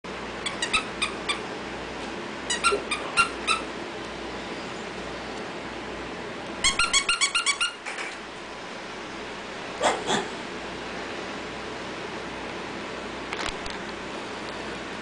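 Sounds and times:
dog toy squeaking: 0.4s - 1.4s, 2.5s - 3.7s, 6.6s - 7.8s.

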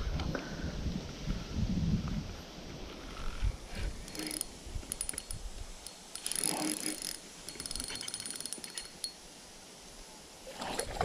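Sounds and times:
fishing reel clicking: 4.0s - 9.2s.

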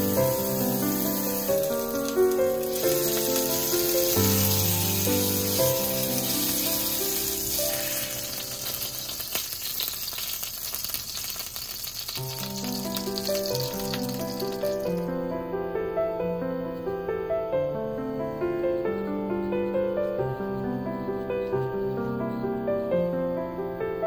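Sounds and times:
background music: 0.0s - 9.2s
food sizzling in a frying pan: 0.0s - 15.2s.

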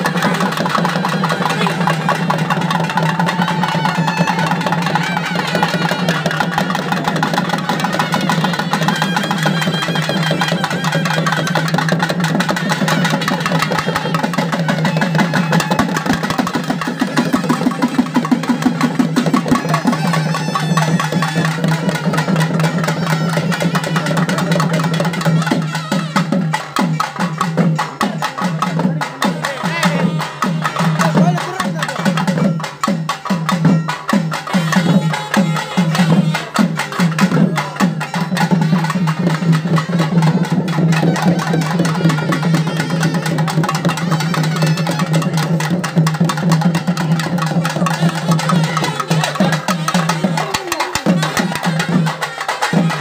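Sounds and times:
drums playing fast beat: 0.0s - 53.0s.

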